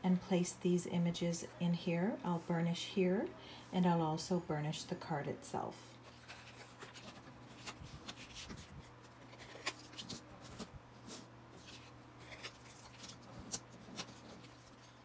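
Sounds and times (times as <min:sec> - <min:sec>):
paper rustling: 0:06.0 - 0:15.0.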